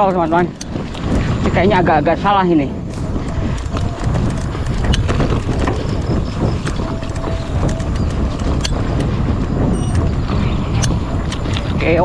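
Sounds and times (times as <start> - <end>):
wind buffeting microphone: 0.0 - 12.0
bike clicks and rattles: 3.0 - 11.8.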